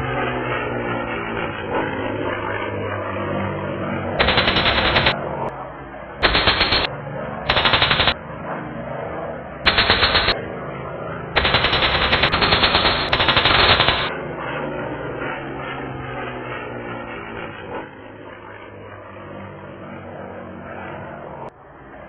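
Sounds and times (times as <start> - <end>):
propeller aircraft engines droning: 0.0 - 22.0
machine-gun fire: 4.2 - 5.2, 6.2 - 6.9, 7.5 - 8.2, 9.7 - 10.4, 11.4 - 14.1.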